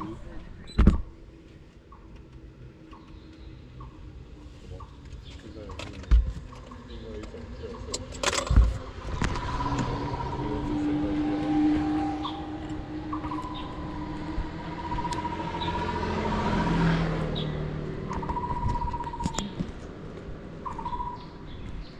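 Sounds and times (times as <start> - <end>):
car passing by: 8.7 - 18.8
bird warbling: 8.8 - 16.6, 17.4 - 19.6, 20.6 - 21.3
high bird chirps: 9.1 - 16.6, 17.3 - 19.6, 20.6 - 21.9.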